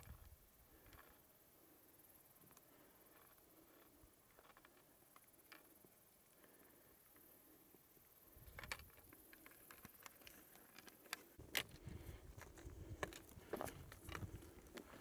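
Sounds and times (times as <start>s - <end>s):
wind rumbling on microphone: 0.0s - 0.4s, 11.4s - 15.0s.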